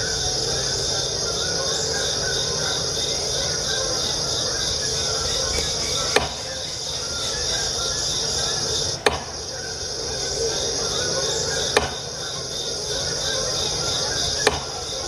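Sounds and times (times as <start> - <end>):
axe chopping wood: 9.0 - 9.3, 14.4 - 14.7.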